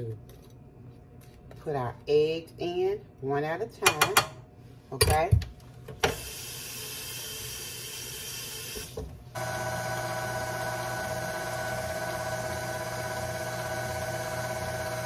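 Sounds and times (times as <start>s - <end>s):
stand mixer motor whining: 9.4s - 15.0s.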